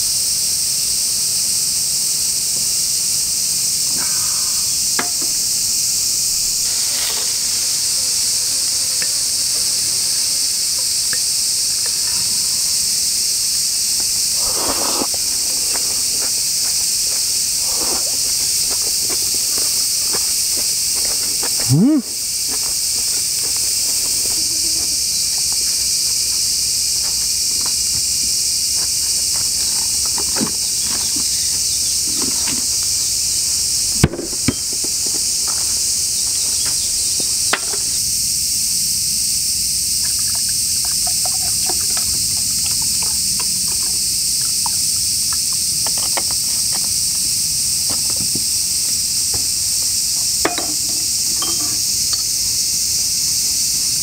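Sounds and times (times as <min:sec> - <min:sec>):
chorus of insects: 0:00.0 - 0:54.0
tableware clicking and knocking: 0:50.4 - 0:52.3.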